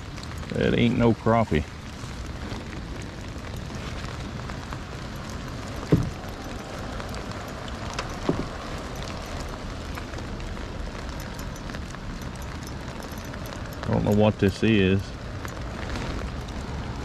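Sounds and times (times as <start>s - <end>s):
rain falling on water: 0.0s - 17.0s
dull knocks: 5.8s - 6.3s, 8.2s - 8.6s.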